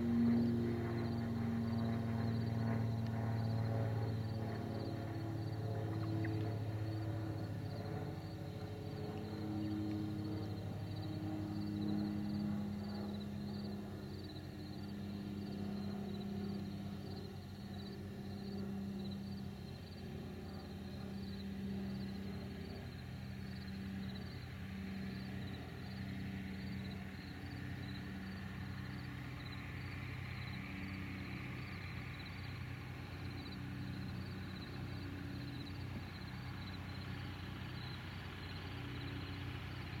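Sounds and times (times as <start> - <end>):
light aircraft engine droning: 0.0 - 40.0.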